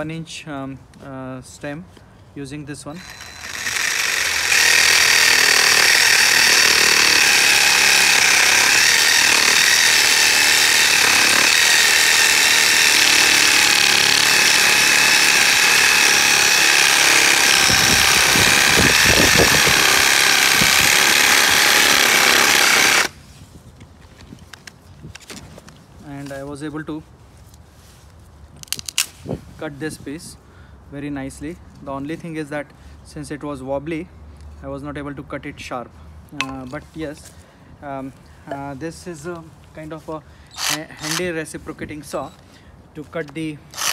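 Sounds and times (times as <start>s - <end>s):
reciprocating saw cutting wood: 2.9s - 23.1s, 40.6s - 41.3s.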